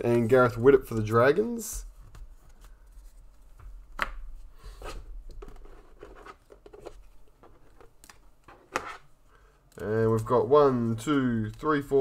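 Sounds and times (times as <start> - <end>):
cards sliding and clicking: 7.6 - 9.1.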